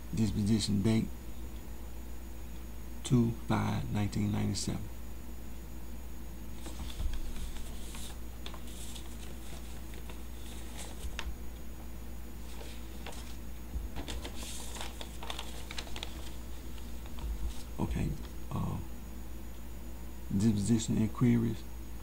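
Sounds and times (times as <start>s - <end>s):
steady low hum: 0.0s - 22.0s
paper rustling and crinkling: 6.6s - 11.5s, 12.4s - 18.3s.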